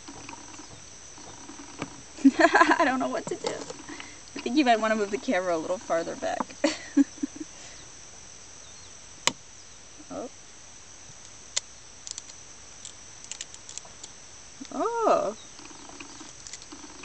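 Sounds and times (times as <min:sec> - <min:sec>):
high-pitched insect drone: 0:00.0 - 0:17.0
shell bits crackling: 0:11.5 - 0:14.7.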